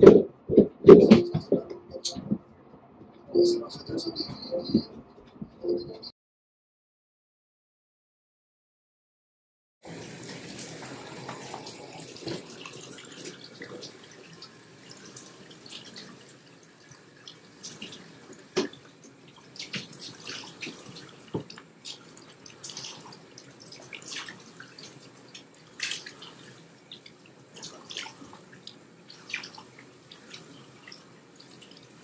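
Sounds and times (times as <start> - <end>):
water running in a sink: 9.8 - 32.0
water dripping: 9.9 - 32.0.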